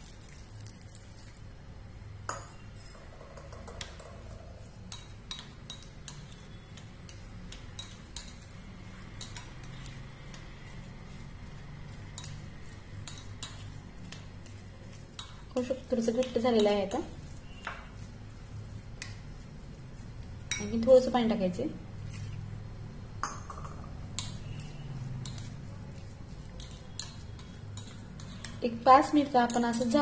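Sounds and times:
spoon stirring thick batter: 0.0 - 1.7, 2.3 - 30.0
spoon clinking against glass bowl: 2.3 - 8.5, 20.4 - 20.9, 23.2 - 25.5, 26.6 - 28.6.

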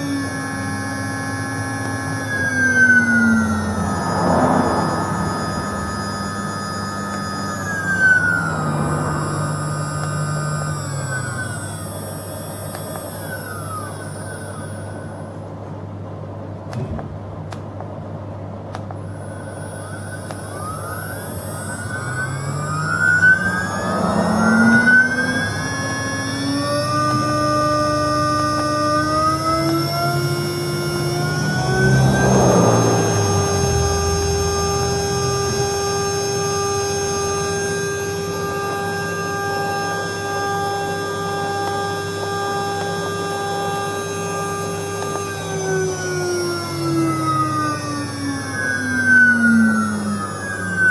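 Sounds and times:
spindle whine rising in pitch: 0.0 - 50.9.

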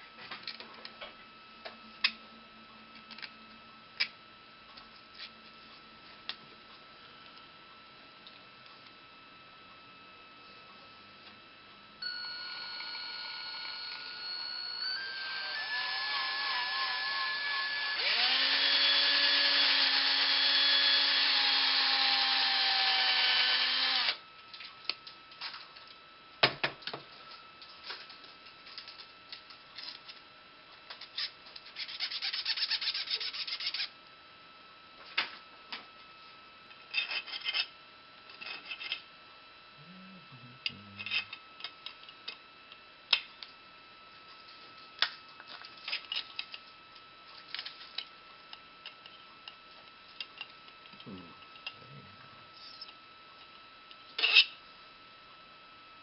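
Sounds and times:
electric power drill running: 12.0 - 24.2.

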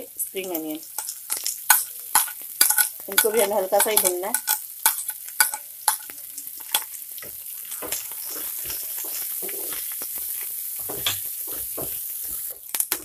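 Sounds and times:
vegetables sizzling in hot oil: 0.0 - 13.0
spatula scraping a pan: 6.7 - 12.6.

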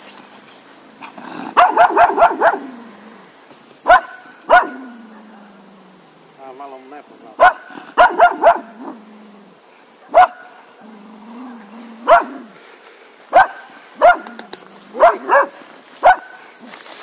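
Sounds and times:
dog barking: 1.6 - 2.7, 3.8 - 5.4, 7.4 - 9.0, 10.0 - 10.6, 12.0 - 12.5, 13.3 - 16.4.

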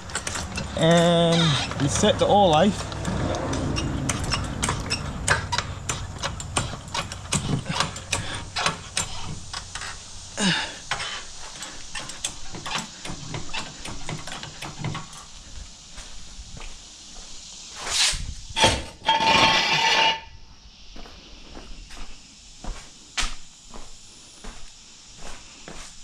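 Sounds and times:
floor jack rattling on concrete: 0.0 - 10.0
falling squeak: 0.7 - 2.0, 2.7 - 5.8.

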